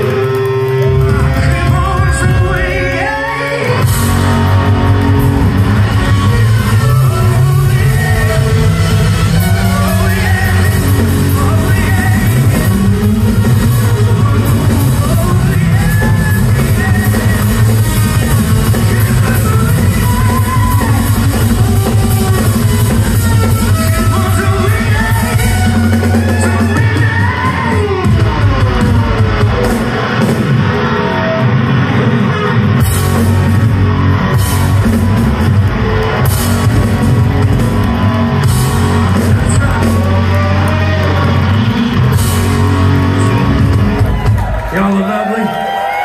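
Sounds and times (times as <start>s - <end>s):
live rock band playing: 0.0s - 46.0s
man singing lead vocal: 1.1s - 4.7s, 5.6s - 29.1s, 39.2s - 41.8s.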